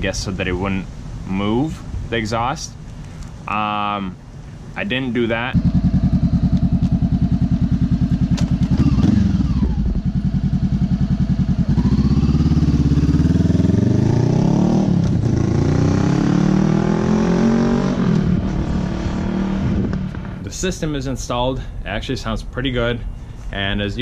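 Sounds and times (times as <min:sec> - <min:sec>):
motorcycle engine idling and revving: 0:04.9 - 0:20.4.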